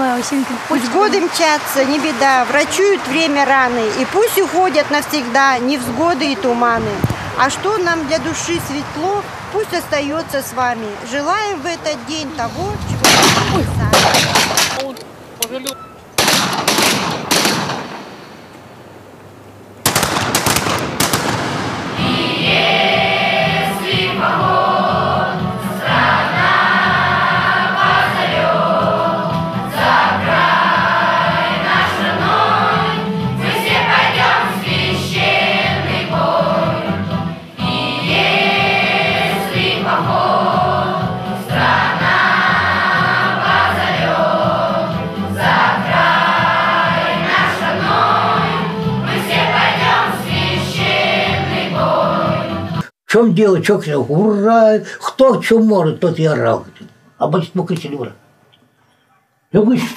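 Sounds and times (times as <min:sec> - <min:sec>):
sharp bang: 0:13.0 - 0:14.9, 0:16.2 - 0:18.4
choir singing with instruments: 0:21.3 - 0:52.9.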